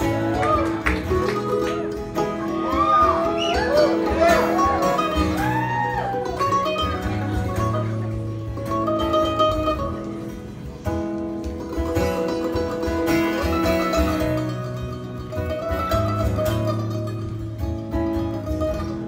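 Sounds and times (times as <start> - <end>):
acoustic guitar: 0.0 - 19.0
mandolin: 0.0 - 19.0.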